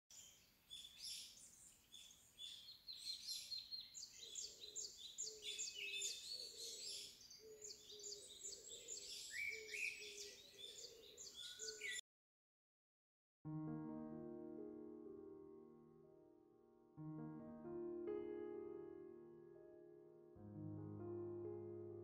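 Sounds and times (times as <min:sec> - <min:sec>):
birds chirping and twittering: 0:00.1 - 0:12.0.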